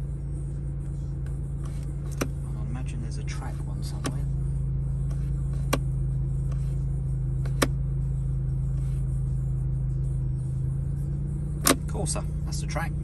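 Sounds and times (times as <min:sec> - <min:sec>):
car engine idling: 0:00.0 - 0:13.0
selector dial clicks: 0:11.6 - 0:12.0.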